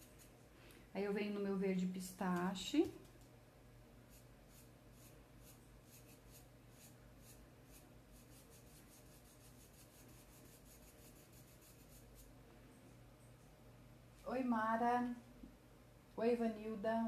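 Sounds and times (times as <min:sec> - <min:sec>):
paintbrush scratching on fabric: 0:04.1 - 0:12.3.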